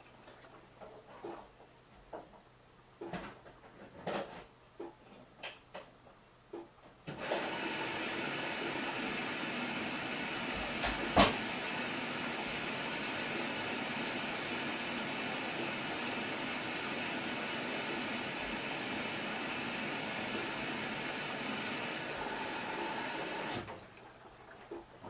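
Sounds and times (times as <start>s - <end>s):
water rushing into washing machine: 7.1s - 25.0s.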